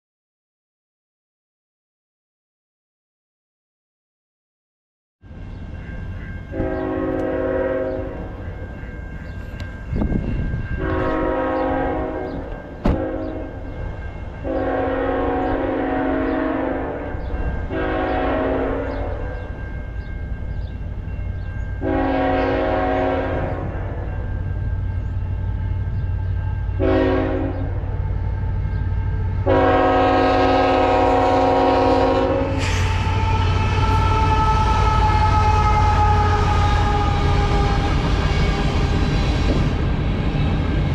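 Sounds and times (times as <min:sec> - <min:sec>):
diesel locomotive rumble: 0:05.3 - 0:40.9
locomotive air horn blasts: 0:06.5 - 0:08.4, 0:10.8 - 0:13.6, 0:14.4 - 0:19.4, 0:21.8 - 0:24.0, 0:26.6 - 0:28.4, 0:29.4 - 0:39.7.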